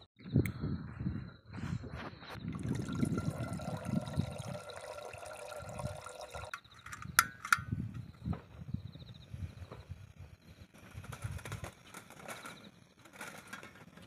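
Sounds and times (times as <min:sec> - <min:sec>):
water pouring into kettle: 0:02.5 - 0:06.6.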